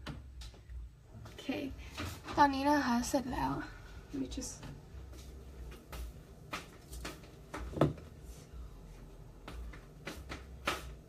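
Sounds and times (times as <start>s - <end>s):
faint low hum: 0.0s - 11.0s
light knocks and thumps: 5.7s - 8.1s.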